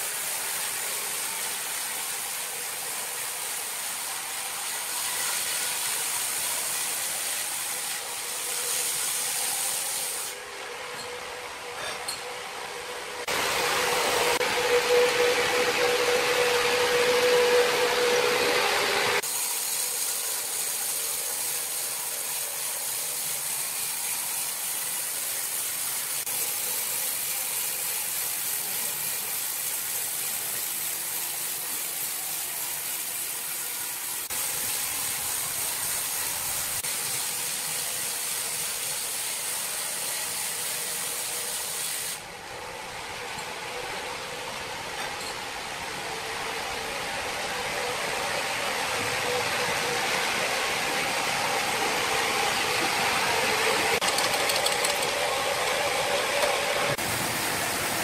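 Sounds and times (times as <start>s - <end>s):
sawmill machine hum: 0.0s - 58.0s
saw blade hissing in wood: 4.8s - 10.4s.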